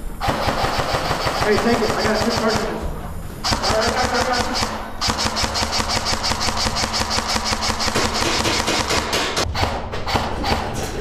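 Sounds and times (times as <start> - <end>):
rapid mechanical clicking: 3.4 - 10.6.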